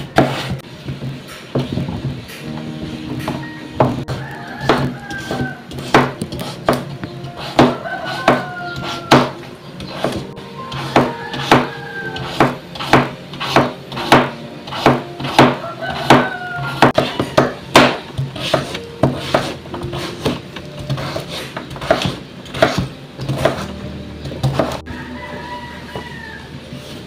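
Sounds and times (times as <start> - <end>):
faint background music: 0.0 - 27.0
knife chopping on wooden board: 0.1 - 0.6, 4.6 - 23.7, 24.3 - 24.8.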